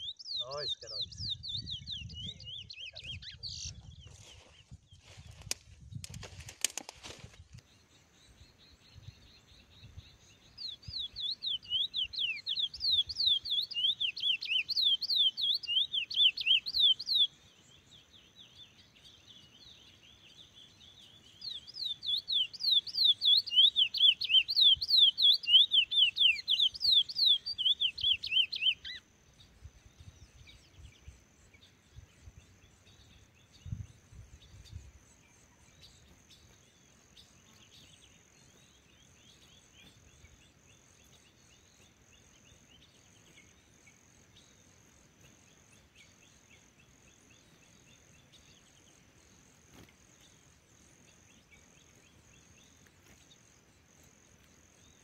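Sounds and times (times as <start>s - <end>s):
finch singing whistled notes: 0.0s - 4.8s, 8.3s - 36.6s.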